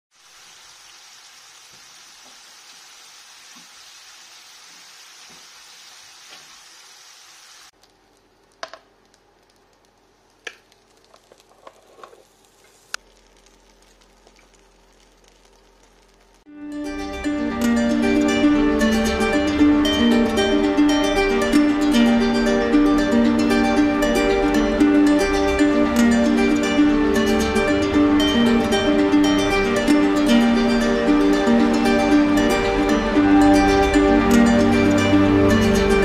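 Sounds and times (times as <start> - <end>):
fries sizzling in hot oil: 0.1 - 16.5.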